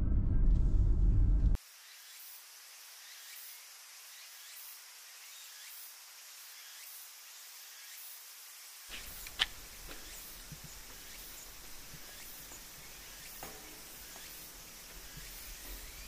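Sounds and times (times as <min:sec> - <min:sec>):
low rumble: 0:00.0 - 0:01.6
steady hiss: 0:01.6 - 0:16.0
sharp click: 0:08.9 - 0:09.6.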